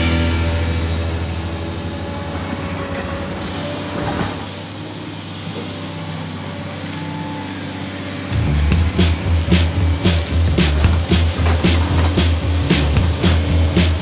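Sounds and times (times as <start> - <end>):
excavator diesel engine droning: 0.0 - 14.0
excavator bucket digging: 8.4 - 14.0.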